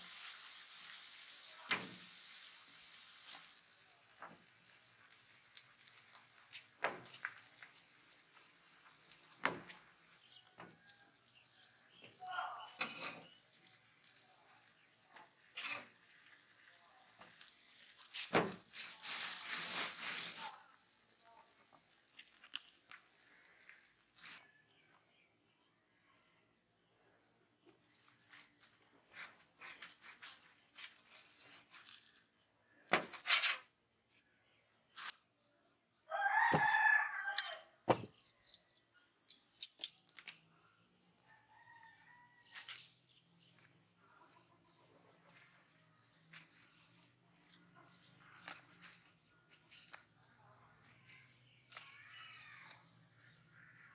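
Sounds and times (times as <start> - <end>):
metal utensils clicking on griddle: 0.0 - 18.9
cricket chirping: 24.2 - 53.9
rooster crowing: 36.0 - 37.8, 41.2 - 42.8.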